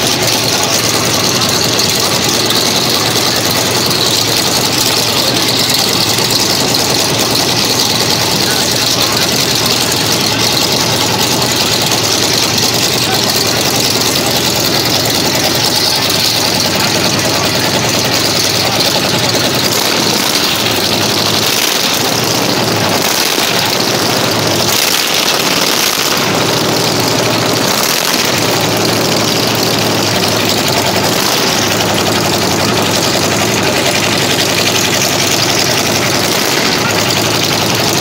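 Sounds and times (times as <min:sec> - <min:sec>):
radial aircraft engine running: 0:00.0 - 0:38.0.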